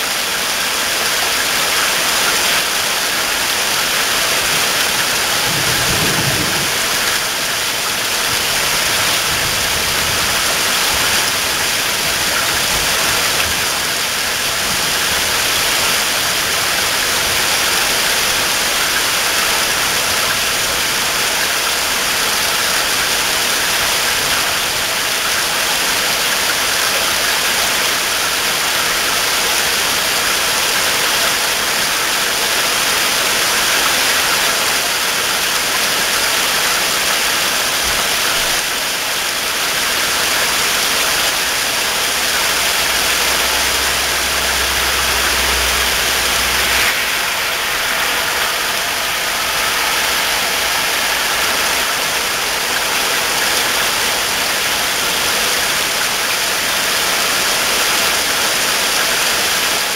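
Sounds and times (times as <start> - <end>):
heavy rain pouring: 0.0 - 59.9
low rumble: 3.8 - 18.7, 41.4 - 54.6.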